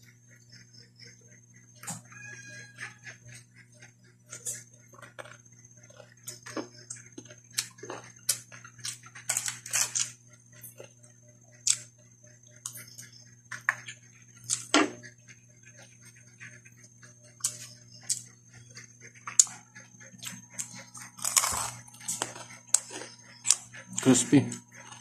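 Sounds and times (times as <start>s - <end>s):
steady low hum: 0.0s - 25.0s
crunching fried fish: 5.0s - 10.2s, 20.3s - 25.0s.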